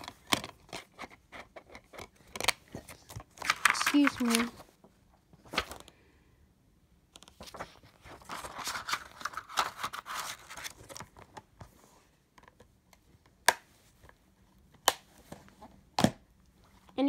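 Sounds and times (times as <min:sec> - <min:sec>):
plastic case rustling and scraping: 0:00.0 - 0:04.8.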